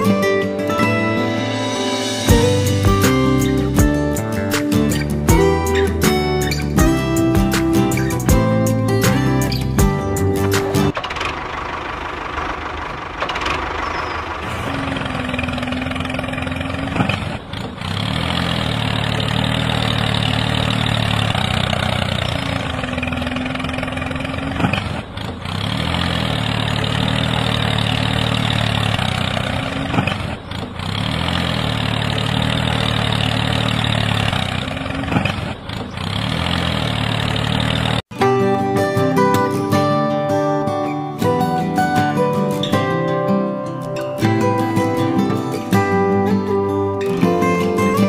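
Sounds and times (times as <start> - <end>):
tractor engine idling: 0.0 - 38.1.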